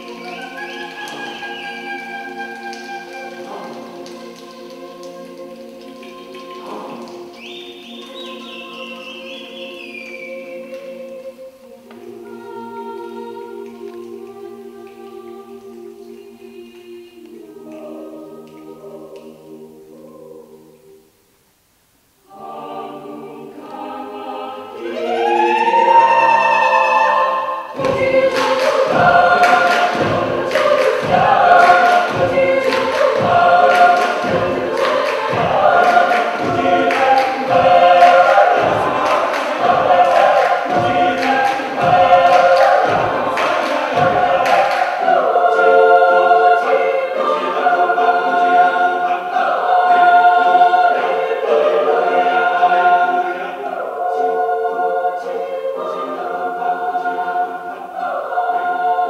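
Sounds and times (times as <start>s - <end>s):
people clapping a steady beat: 0.0s - 11.0s, 27.7s - 52.9s
choir singing a cappella: 0.0s - 21.2s, 22.2s - 59.0s.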